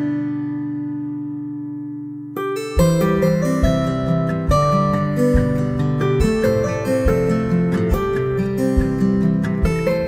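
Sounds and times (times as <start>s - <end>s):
strummed acoustic guitar: 0.0s - 10.0s
steady low beat: 2.8s - 10.0s.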